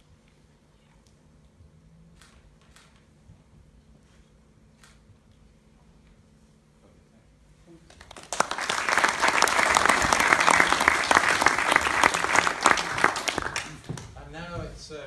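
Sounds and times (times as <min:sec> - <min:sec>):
audience applauding: 0:07.9 - 0:14.1.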